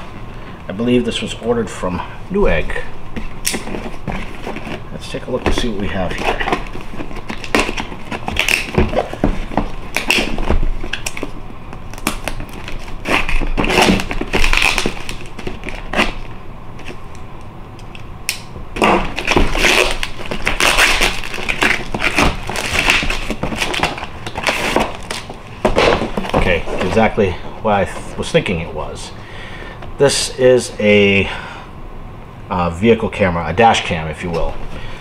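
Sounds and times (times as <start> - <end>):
rustling and scraping: 3.1 - 11.4, 18.8 - 28.3
envelope crinkling and ripping: 3.5 - 17.0, 18.8 - 27.1.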